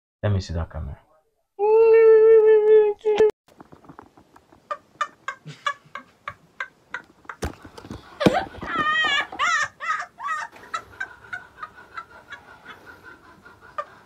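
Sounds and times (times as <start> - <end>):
chickens clucking: 3.5 - 14.0.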